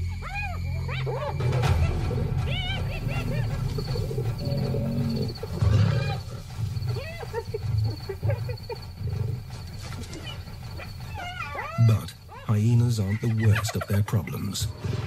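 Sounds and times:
hyenas whooping and giggling: 0.0s - 14.1s
lions growling: 1.0s - 13.6s.

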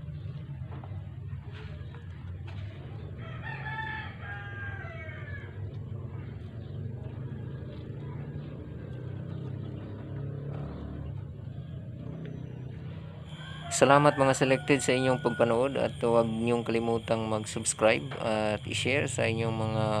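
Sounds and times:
rooster crowing: 3.2s - 5.8s, 13.2s - 20.0s.

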